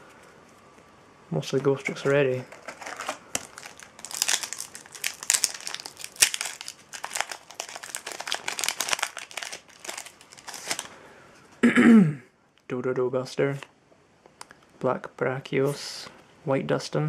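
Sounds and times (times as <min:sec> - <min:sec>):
foil wrapper crinkling and tearing: 0:01.9 - 0:11.0.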